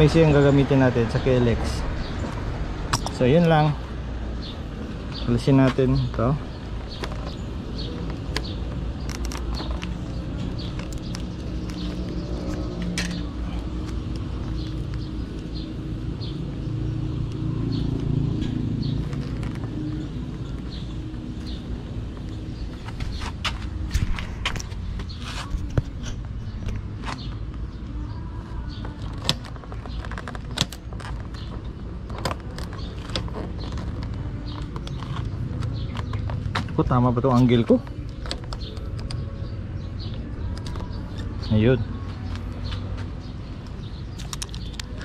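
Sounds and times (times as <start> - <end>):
vehicle engine droning: 0.0 - 45.0
clutch lever clicks and rattles: 6.0 - 15.5, 28.8 - 39.4, 43.6 - 45.0.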